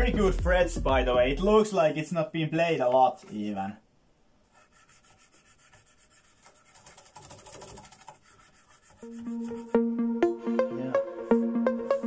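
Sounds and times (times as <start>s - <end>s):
music: 0.0s - 1.6s, 9.0s - 12.0s
toothbrush scrubbing guitar frets: 4.8s - 9.9s.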